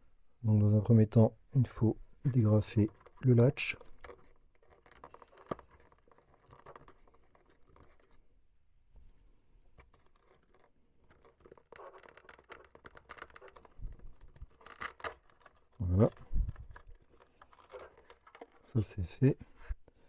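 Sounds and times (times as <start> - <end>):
fingers scratching and clicking latch: 2.8 - 8.2, 9.8 - 18.6.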